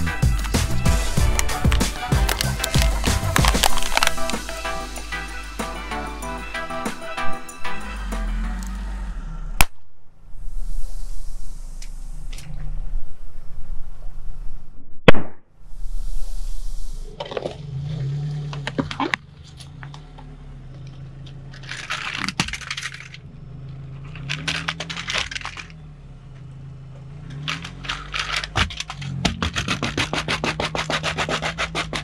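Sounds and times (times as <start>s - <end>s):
car engine hum: 0.0s - 14.8s, 15.6s - 32.0s
plastic cracking and snapping: 1.2s - 4.6s
loud pop: 15.0s - 15.5s.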